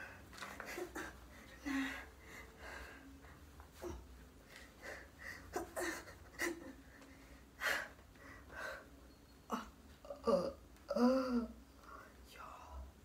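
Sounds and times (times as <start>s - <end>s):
woman breathing and gasping: 0.0s - 9.8s.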